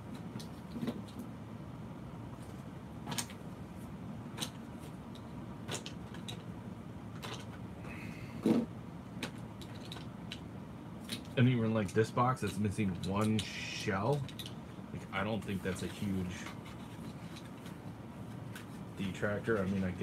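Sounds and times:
low room hum: 0:00.0 - 0:20.0.

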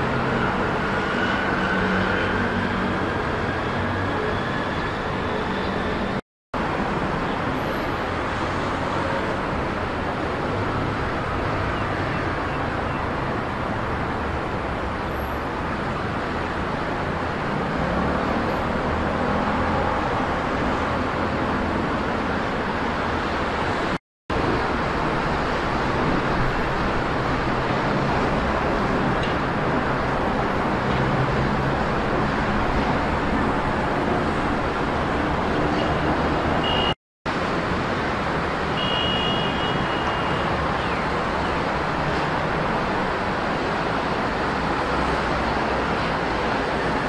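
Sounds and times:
distant road traffic roar: 0:00.0 - 0:47.0.

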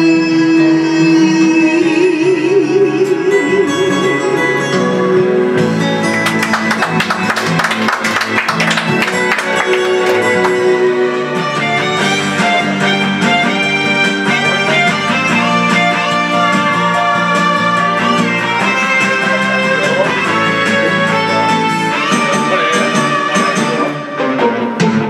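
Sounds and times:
woman singing with vibrato: 0:00.0 - 0:05.0
instrumental backing music: 0:00.0 - 0:25.0.

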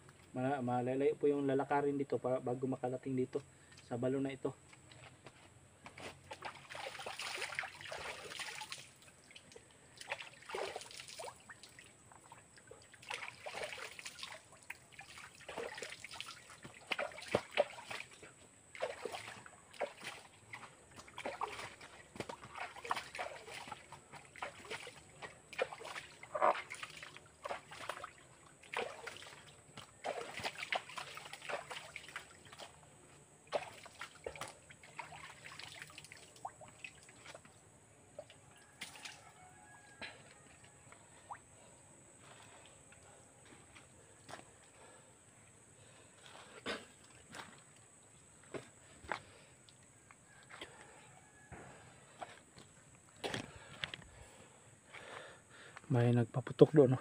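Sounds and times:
hands splashing water: 0:06.3 - 0:32.8, 0:33.5 - 0:37.6
water trickling: 0:06.3 - 0:43.2.

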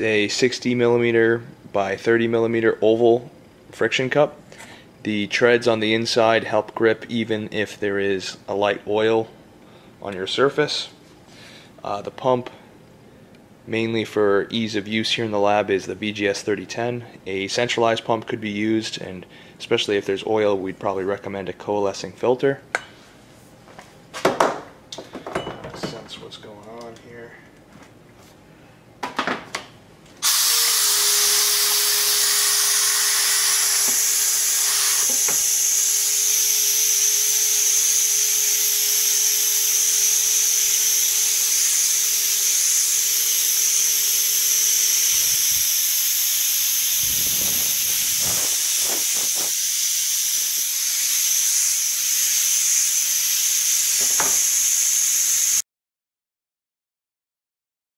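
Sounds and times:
compressed air hissing: 0:35.2 - 0:55.6.

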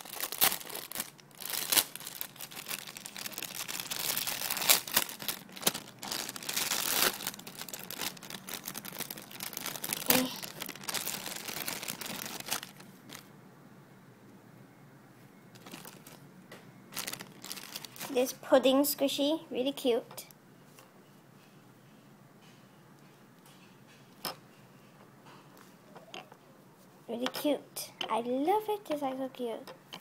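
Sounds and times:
plastic bag crinkling: 0:00.0 - 0:13.3, 0:15.6 - 0:16.2, 0:16.9 - 0:18.3.

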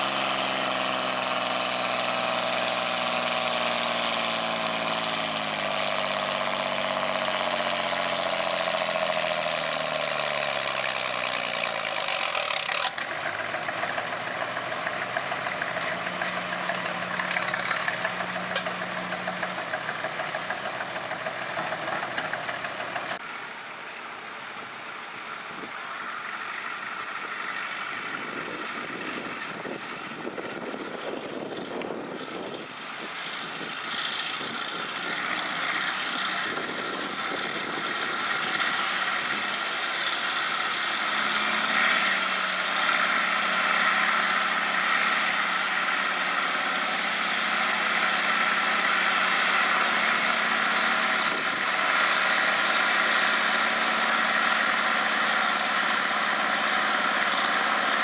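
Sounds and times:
tractor engines working hard: 0:00.0 - 0:58.0.

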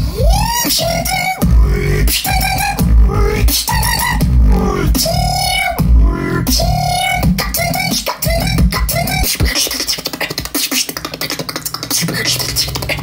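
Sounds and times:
person beatboxing: 0:00.0 - 0:13.0.

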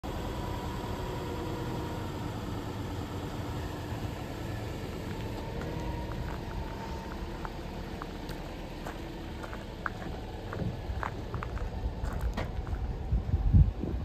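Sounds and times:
car engine idling: 0:00.0 - 0:14.0
footsteps on gravel: 0:04.8 - 0:12.9.

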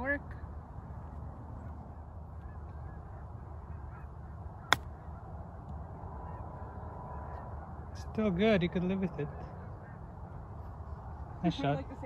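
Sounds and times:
low outdoor background: 0:00.0 - 0:12.0.

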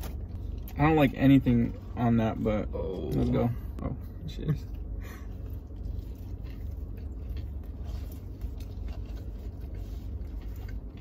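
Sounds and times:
people chewing: 0:04.5 - 0:11.0.

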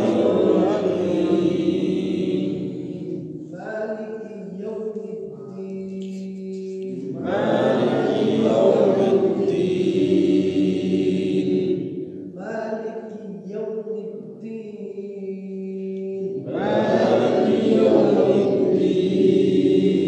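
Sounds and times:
voices chanting in unison: 0:00.0 - 0:03.5, 0:06.8 - 0:12.4, 0:16.1 - 0:20.0
steady held drone: 0:00.0 - 0:03.6, 0:06.8 - 0:12.4.

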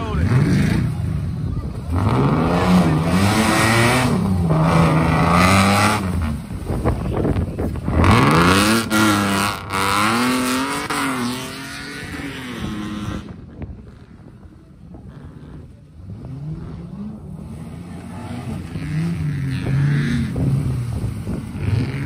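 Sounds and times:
engine revving hard: 0:01.9 - 0:06.4, 0:07.9 - 0:13.4.

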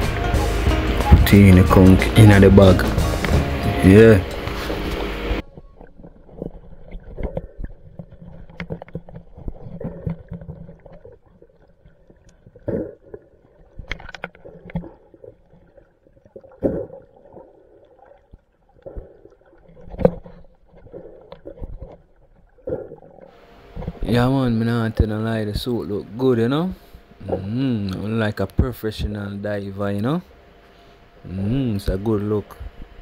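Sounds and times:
low underwater rumble: 0:00.0 - 0:26.2
shells knocking underwater: 0:04.3 - 0:24.0.

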